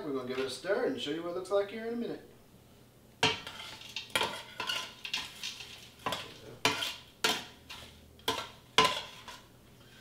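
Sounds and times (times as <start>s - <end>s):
spoon scraping a metal pot: 3.2s - 10.0s.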